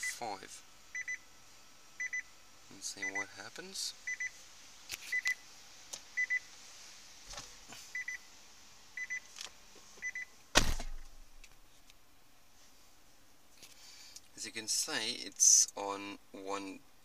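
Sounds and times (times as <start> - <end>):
short electronic beeps: 4.1 - 4.3.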